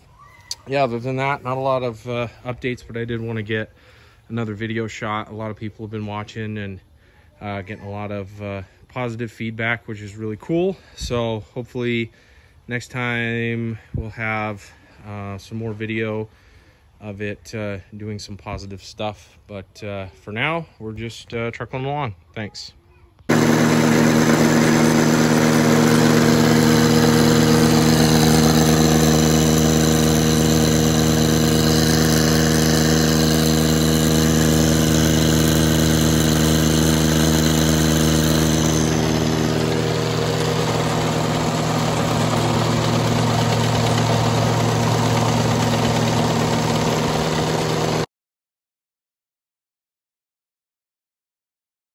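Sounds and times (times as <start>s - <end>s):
diesel engine running: 23.3s - 48.1s.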